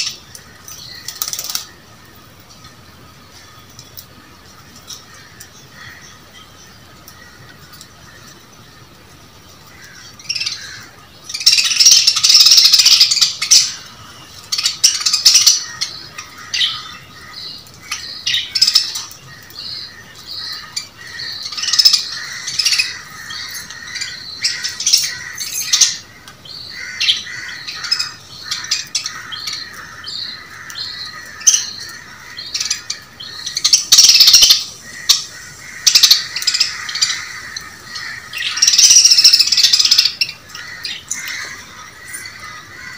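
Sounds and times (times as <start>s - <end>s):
harsh squabbling bird calls: 0.0s - 42.9s
budgerigars chirping and chattering: 9.5s - 42.9s.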